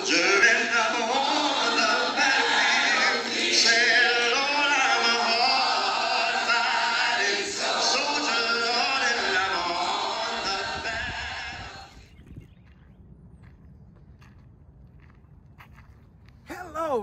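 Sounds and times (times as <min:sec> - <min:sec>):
a cappella choir singing: 0:00.0 - 0:12.0.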